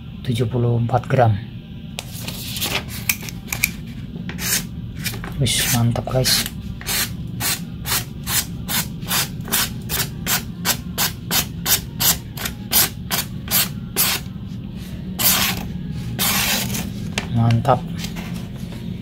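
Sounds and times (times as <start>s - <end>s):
knife slicing paper: 15.2s - 17.0s.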